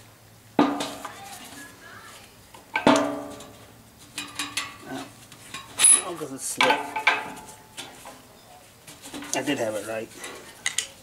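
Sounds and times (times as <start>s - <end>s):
sheet metal housing ringing: 0.6s - 1.2s, 2.7s - 4.9s, 5.5s - 8.0s
metal clanks and clinks: 2.8s - 8.2s.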